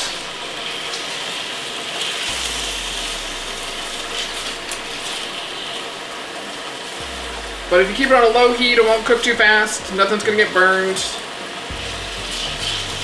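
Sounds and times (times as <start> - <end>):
meat sizzling in a frying pan: 0.0 - 2.3.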